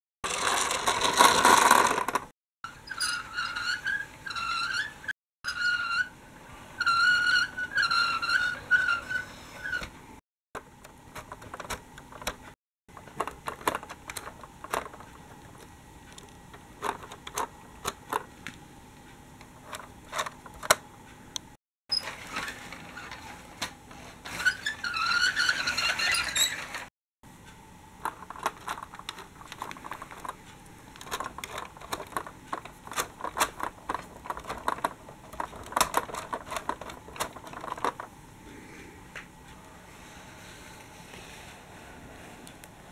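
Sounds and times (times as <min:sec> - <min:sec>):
plastic toy clicks and rattles: 0:00.3 - 0:02.3, 0:13.0 - 0:18.3, 0:28.0 - 0:38.1.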